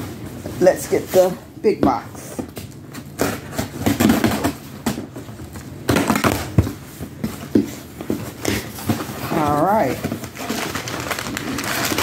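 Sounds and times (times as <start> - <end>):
cardboard rustling and scraping: 0.0 - 12.0
packing tape pulled: 10.2 - 12.0.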